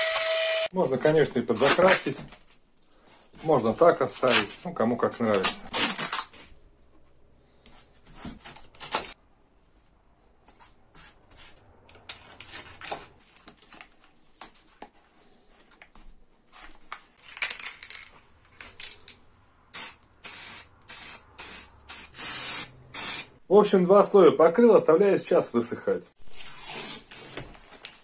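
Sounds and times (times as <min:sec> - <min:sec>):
masking tape unrolling and rustling: 0:01.4 - 0:06.6, 0:19.7 - 0:23.4, 0:26.2 - 0:28.0
spray paint can hissing: 0:19.7 - 0:23.3.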